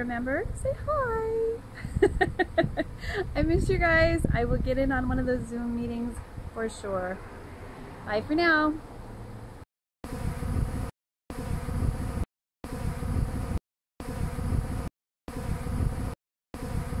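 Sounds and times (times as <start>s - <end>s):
bees buzzing: 10.1s - 17.0s.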